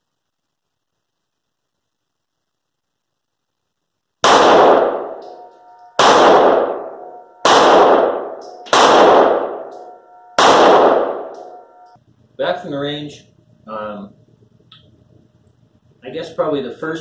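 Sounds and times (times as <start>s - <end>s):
pistol shots echoing indoors: 4.2s - 12.0s.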